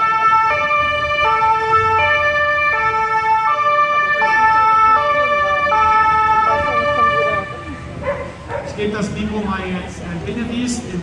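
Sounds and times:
two-tone ambulance siren: 0.0s - 8.0s.

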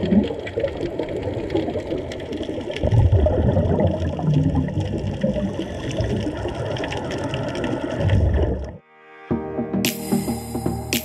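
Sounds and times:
bubbling underwater rumble: 0.0s - 8.8s.

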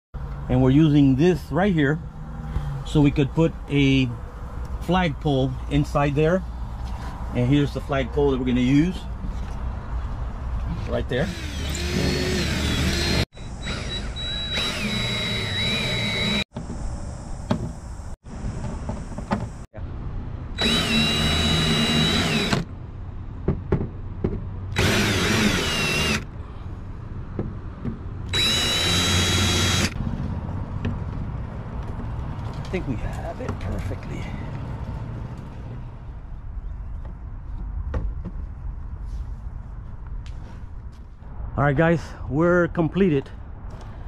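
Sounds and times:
power drill whining: 11.3s - 16.5s, 20.6s - 22.6s, 24.8s - 26.2s, 28.3s - 30.0s.

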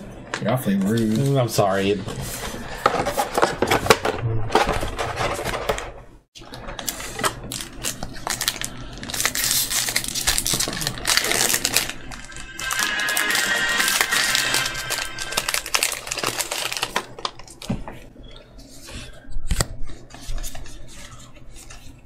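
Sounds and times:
wrappers crinkling: 6.8s - 17.8s.

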